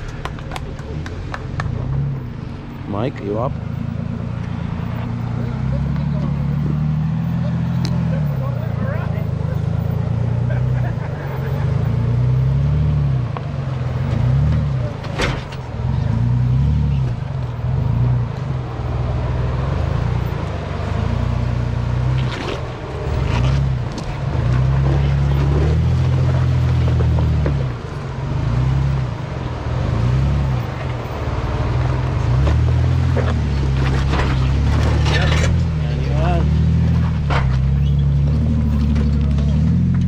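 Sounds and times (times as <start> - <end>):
engine revving under load: 0.0 - 40.0.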